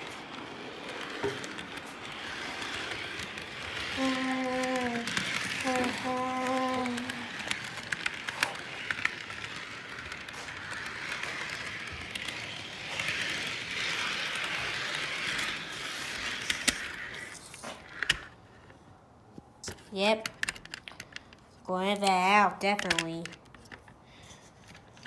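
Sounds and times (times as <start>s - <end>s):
model train running on track: 0.0s - 18.4s, 21.9s - 23.4s.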